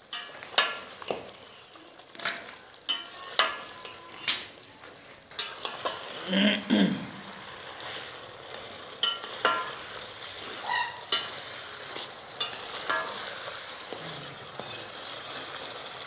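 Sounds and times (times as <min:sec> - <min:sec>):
curry sizzling in a pot: 0:00.0 - 0:16.0
spoon clinking against a pot: 0:00.1 - 0:01.4, 0:02.2 - 0:04.4, 0:05.3 - 0:06.1, 0:08.9 - 0:10.0, 0:10.6 - 0:16.0.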